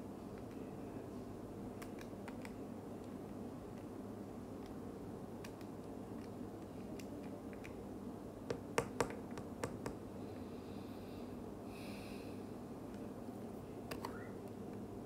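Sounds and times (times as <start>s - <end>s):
low room hum: 0.0s - 15.0s.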